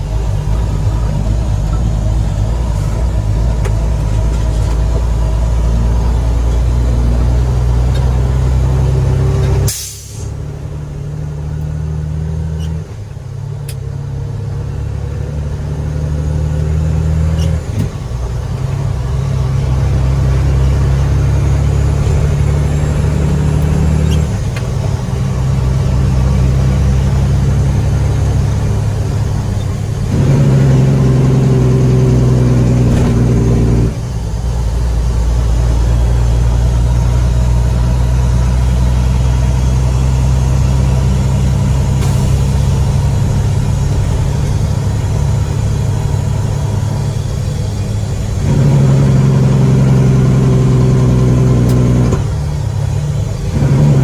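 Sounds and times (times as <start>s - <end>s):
heavy diesel truck engine running: 0.0s - 54.0s
sharp air hiss: 9.7s - 10.4s.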